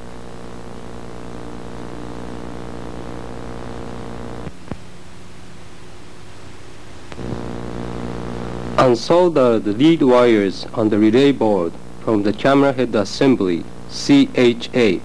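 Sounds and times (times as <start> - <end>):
steady electrical hum: 0.0 - 15.0
light hiss: 3.7 - 14.3.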